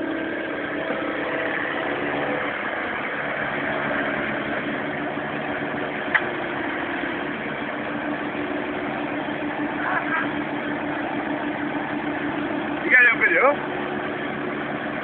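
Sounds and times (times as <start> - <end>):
mini digger engine idling: 0.0 - 15.0.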